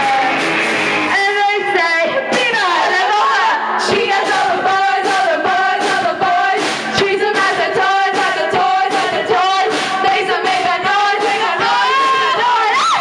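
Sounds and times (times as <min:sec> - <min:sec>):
live band with electric guitars: 0:00.0 - 0:02.4
person singing through pa: 0:02.3 - 0:13.0.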